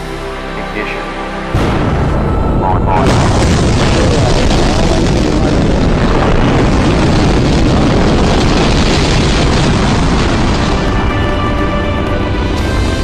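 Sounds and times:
sustained musical tones: 0.0 - 5.6, 10.6 - 13.0
rocket engines roaring: 1.6 - 13.0.

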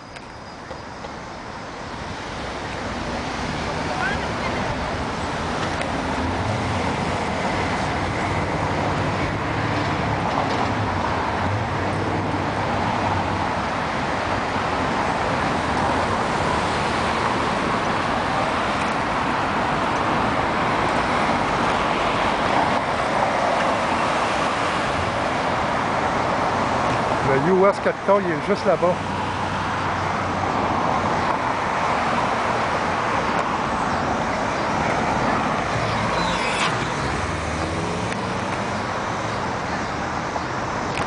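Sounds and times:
road noise: 0.0 - 41.0
cars driving past: 0.7 - 41.0.

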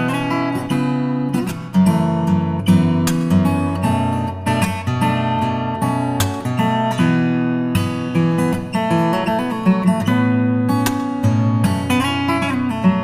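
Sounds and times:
acoustic guitar chords: 0.0 - 13.0.

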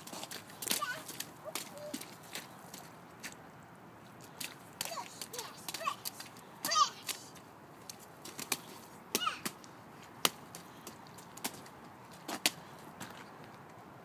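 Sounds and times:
boots splashing through mud: 0.0 - 3.4, 4.1 - 13.1
child's voice: 0.7 - 2.1, 4.8 - 7.4, 9.2 - 9.5.

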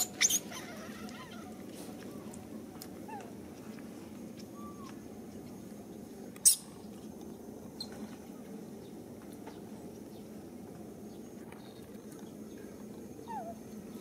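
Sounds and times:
monkey squeaks: 0.0 - 0.7
low background noise: 0.0 - 14.0.

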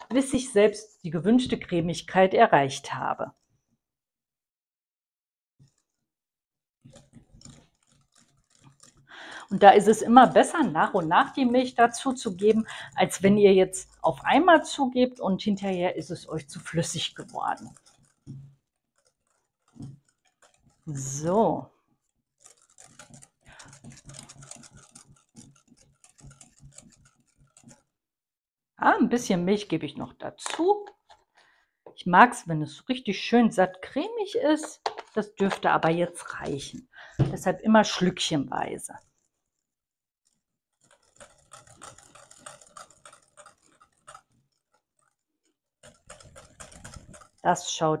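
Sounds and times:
whisk ticking against glass bowl: 6.9 - 27.9, 40.3 - 47.8.

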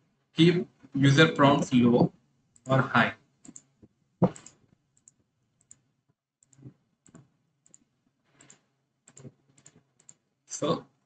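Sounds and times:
computer mouse clicks: 3.4 - 5.8, 6.4 - 10.2.

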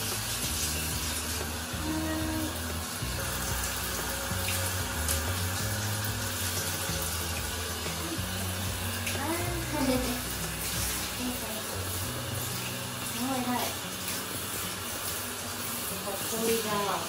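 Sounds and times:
background music of low notes: 0.0 - 17.0
shower head spraying water: 0.0 - 17.0.

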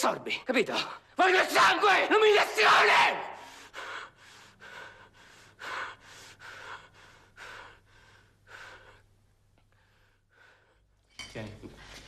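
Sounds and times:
man panting hard: 3.4 - 9.0.

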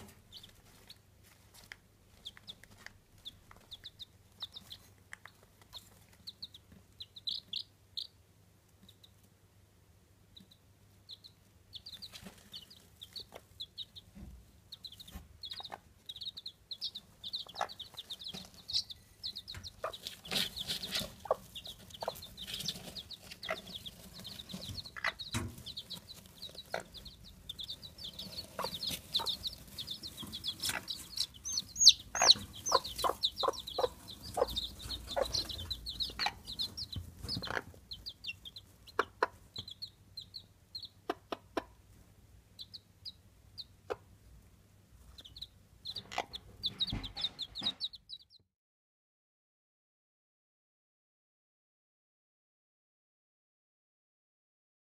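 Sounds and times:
chicks peeping: 0.0 - 9.4, 10.2 - 48.4
hen clucking: 1.6 - 8.2, 10.4 - 41.8, 42.6 - 44.1, 45.1 - 48.3.

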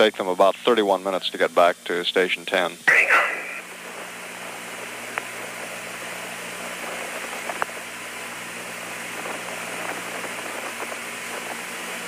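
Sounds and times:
low steady hum: 0.0 - 12.0
radio static hiss: 1.2 - 7.8.

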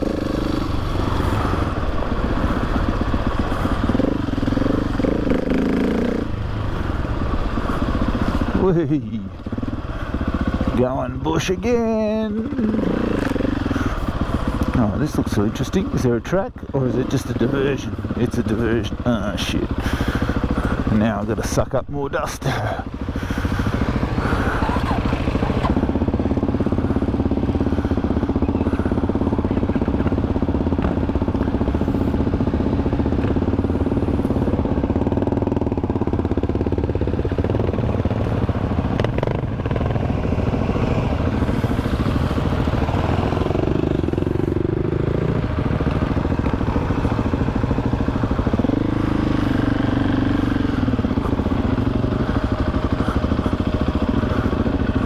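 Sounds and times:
motorcycle engine revving: 0.0 - 55.0.

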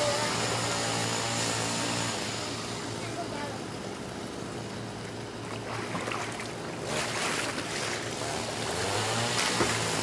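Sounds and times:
pool water splashing: 4.8 - 10.0.

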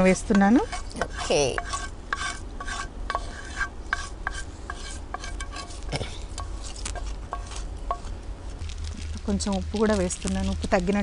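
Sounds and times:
spatula scraping and tapping pan: 0.0 - 8.2
spices sizzling in oil: 0.0 - 11.0.

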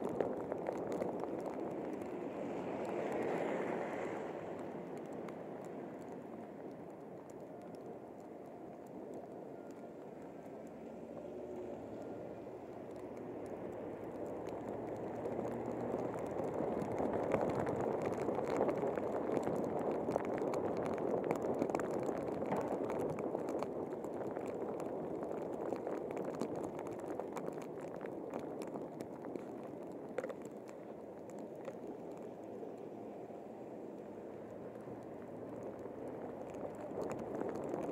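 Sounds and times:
tyres rushing through slush: 0.1 - 6.4
small scattered ticks: 12.6 - 32.9.

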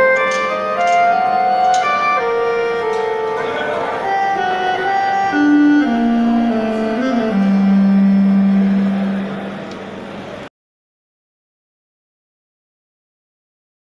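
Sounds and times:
electronic saxophone melody: 0.0 - 9.6.

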